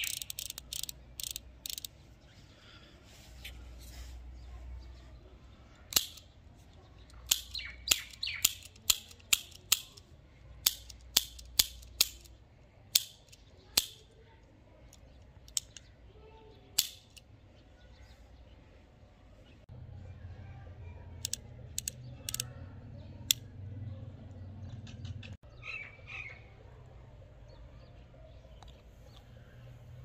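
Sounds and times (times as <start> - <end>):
revolver hammer clicks: 21.2 - 22.5.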